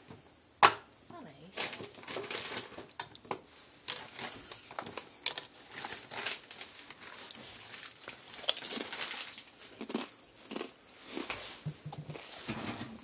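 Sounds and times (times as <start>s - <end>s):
chip bag crinkling: 1.5s - 11.6s.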